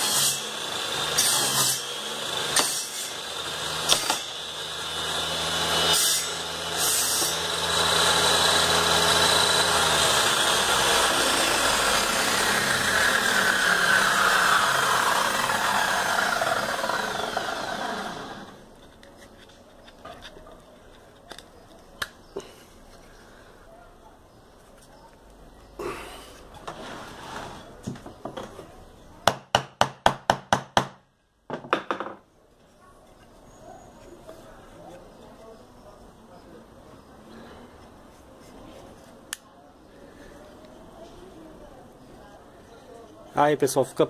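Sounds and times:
saw blade spinning down whine: 0.0s - 18.6s
table saw cutting wood: 0.0s - 18.6s.

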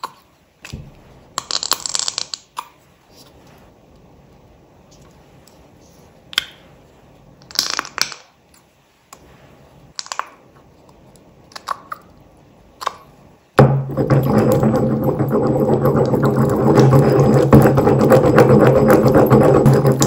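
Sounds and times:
plastic tubes clicking and crackling: 1.4s - 2.7s.

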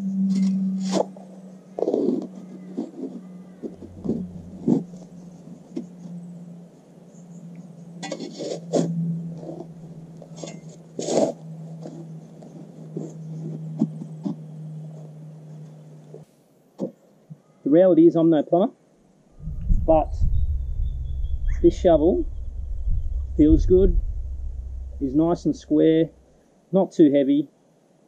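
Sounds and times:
steady low hum: 0.0s - 16.3s, 19.2s - 26.5s
shovel striking and scraping soil: 0.3s - 1.2s, 8.0s - 14.4s.

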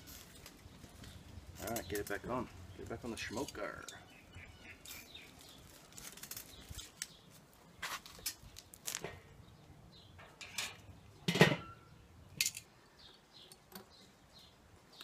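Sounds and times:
metal lid clanking: 10.2s - 11.8s
metal tongs clicking and knocking: 12.4s - 12.7s.

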